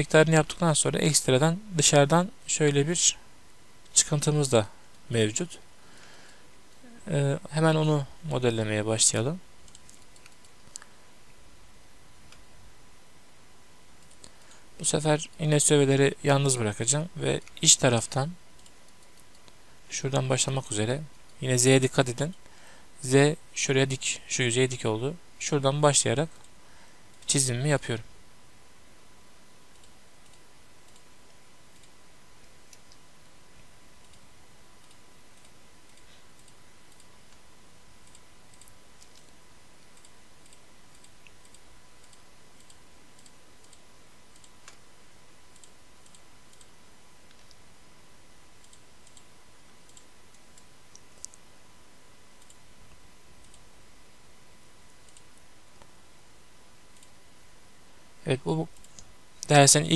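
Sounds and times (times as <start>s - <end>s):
computer mouse clicks: 9.6s - 10.9s, 14.0s - 14.6s, 18.6s - 19.6s, 26.3s - 27.4s, 29.7s - 33.0s, 34.0s - 37.4s, 38.0s - 44.8s, 45.5s - 47.6s, 48.6s - 51.4s, 52.4s - 52.6s, 53.4s - 53.7s, 54.9s - 55.9s, 56.9s - 57.2s, 58.7s - 59.5s.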